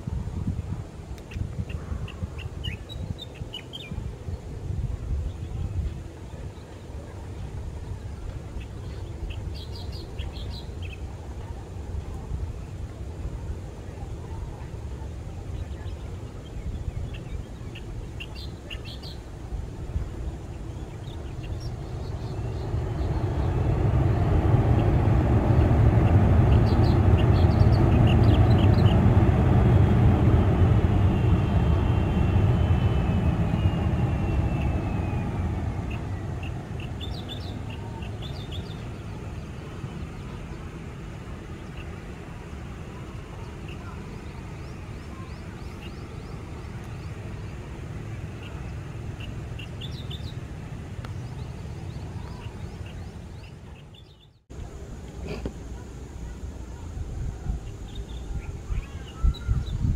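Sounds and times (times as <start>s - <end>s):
birds chirping: 1.2s - 4.4s, 15.5s - 54.5s
jet engines roaring: 19.3s - 52.8s
engine whine falling in pitch: 21.3s - 39.2s.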